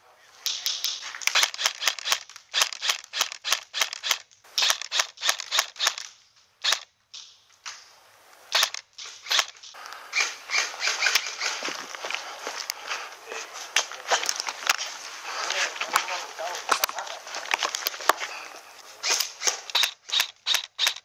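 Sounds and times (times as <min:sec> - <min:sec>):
airsoft gun shots: 0:08.5 - 0:11.7
rustling shuffling noise: 0:10.3 - 0:19.7.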